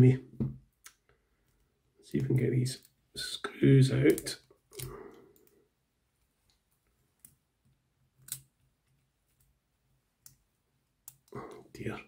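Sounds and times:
small sharp clicks: 8.2 - 8.6.

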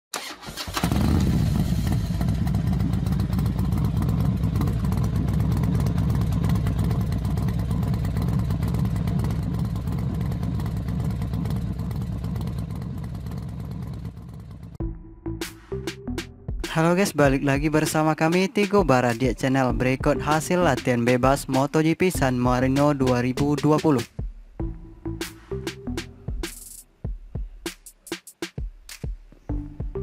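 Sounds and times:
motorcycle engine running: 0.7 - 14.8.

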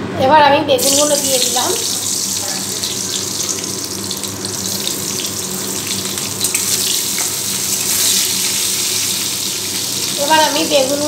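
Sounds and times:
food sizzling in oil: 0.8 - 11.0.

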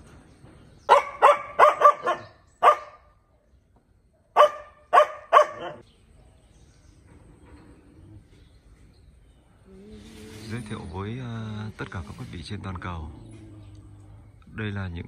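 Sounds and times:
dog barking: 0.9 - 3.1, 4.3 - 5.8.

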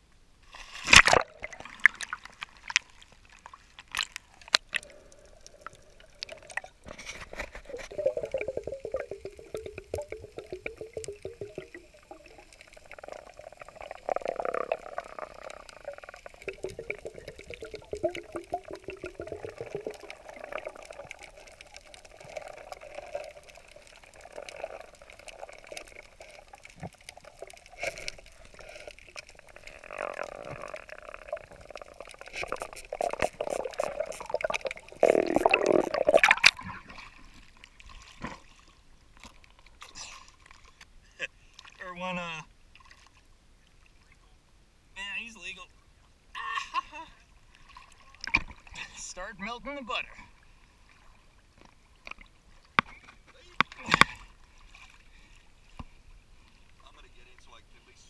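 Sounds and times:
underwater gurgling bubbles: 0.8 - 38.5.

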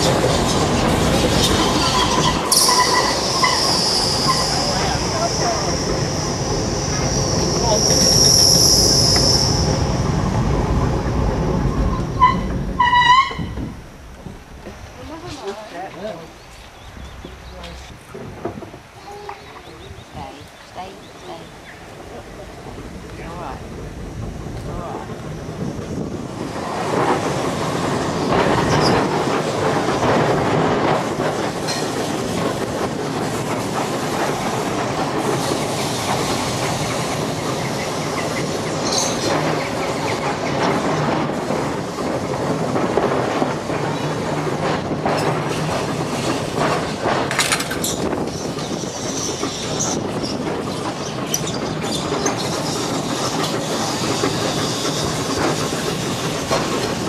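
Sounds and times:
tram wheels rumbling on rail: 0.0 - 57.0
high wheel squeals: 1.4 - 9.8, 12.0 - 13.7, 51.0 - 53.2
wheels clicking over rail joints: 21.5 - 57.0.

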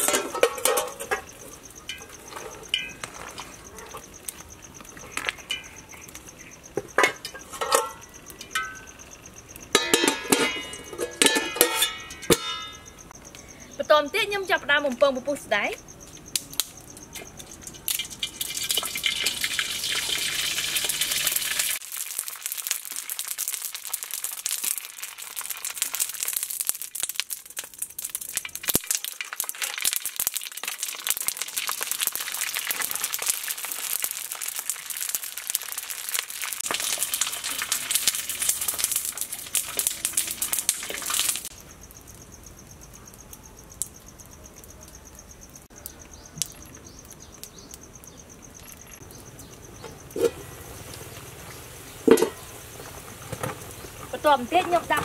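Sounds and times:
food sizzling in hot oil: 17.2 - 41.6, 46.8 - 55.0.

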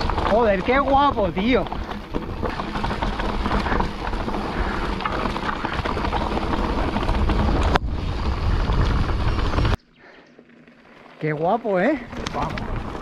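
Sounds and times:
tyres crunching on dirt: 0.0 - 9.8, 10.4 - 13.0
wind buffeting microphone: 0.0 - 9.8
bike rattling: 0.0 - 13.0.

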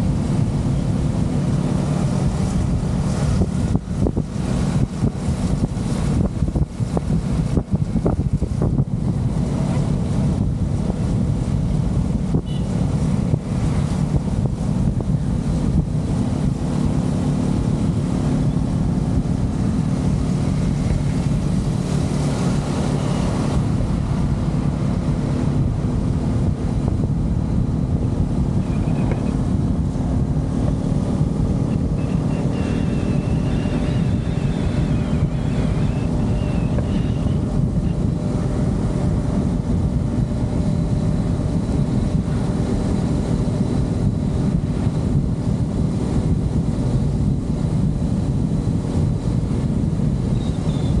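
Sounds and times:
motorcycle engine running: 0.0 - 51.0
wind noise on microphone: 0.0 - 51.0.

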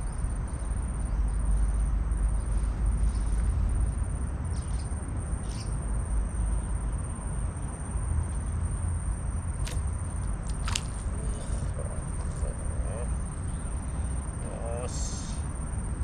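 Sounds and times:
steady low rumble: 5.9 - 16.0
short sharp clicks: 10.5 - 11.6.

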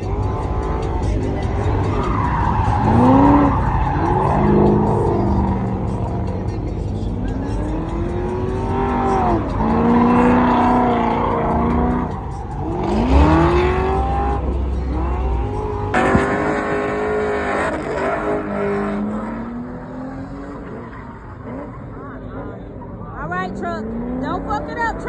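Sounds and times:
car engine revving hard: 0.0 - 22.7
tyres squealing: 0.4 - 6.3.

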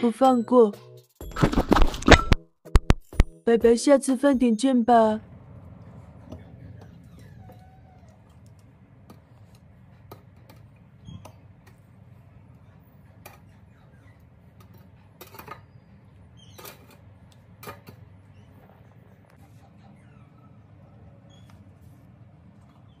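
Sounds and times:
steady low hum: 5.2 - 23.0.

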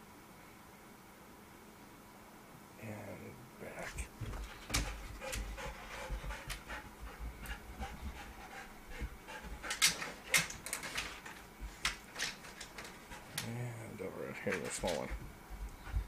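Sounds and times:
dog panting: 4.0 - 13.5, 14.3 - 16.0
claws clicking on wooden desk: 9.7 - 13.5.

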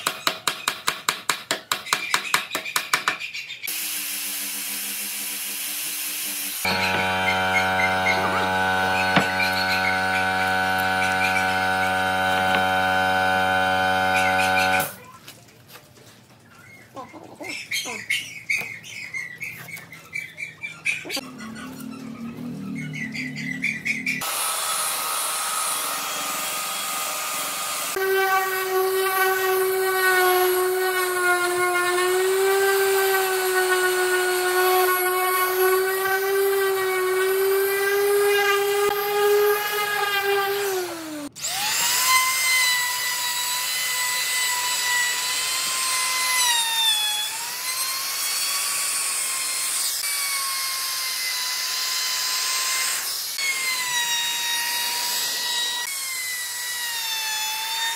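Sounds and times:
router whining: 3.7 - 15.0, 24.2 - 57.9
orbital sander humming: 4.4 - 15.0.

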